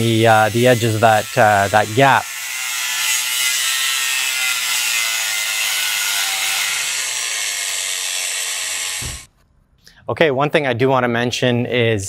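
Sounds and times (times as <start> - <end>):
grinder wheel hissing in steel: 0.0 - 3.3.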